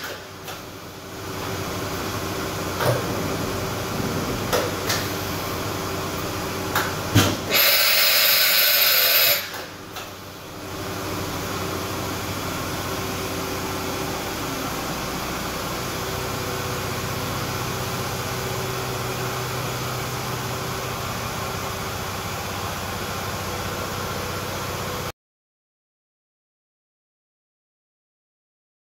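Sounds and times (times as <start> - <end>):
machine hum: 0.0 - 25.1
loud air hiss: 7.5 - 9.7.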